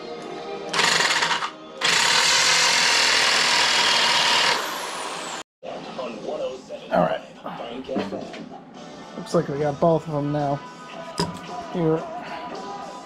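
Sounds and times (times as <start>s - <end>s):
background music: 0.0s - 3.1s, 5.6s - 13.0s
electric drill boring through wood: 0.7s - 5.4s.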